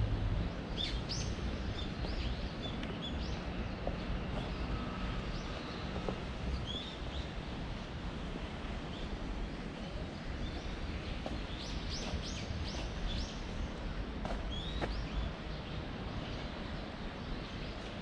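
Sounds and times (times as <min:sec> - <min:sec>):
small birds chirping: 0:10.2 - 0:13.5.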